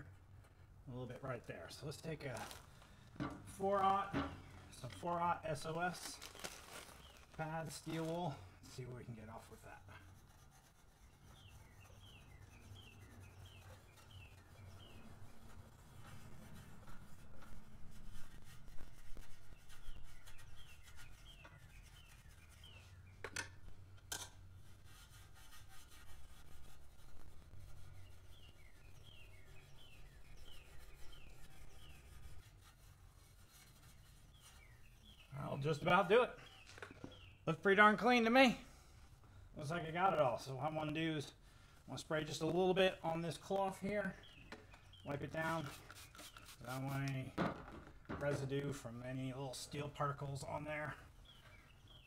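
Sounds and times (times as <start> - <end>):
birds chirping: 34.3 - 38.6, 39.6 - 47.4, 48.1 - 52.0.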